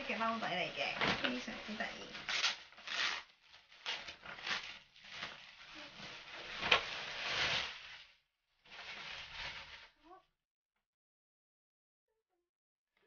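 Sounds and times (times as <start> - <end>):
plastic bag crinkling: 0.0 - 10.1.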